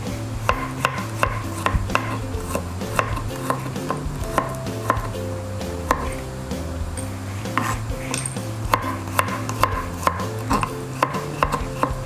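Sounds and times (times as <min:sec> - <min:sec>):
background music: 0:00.0 - 0:12.0
knife tapping cutting board: 0:00.4 - 0:05.1, 0:05.8 - 0:06.2, 0:07.5 - 0:12.0.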